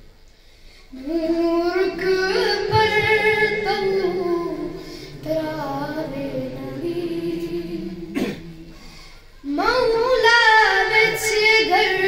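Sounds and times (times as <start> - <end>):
boy singing solo: 0.9 - 8.1.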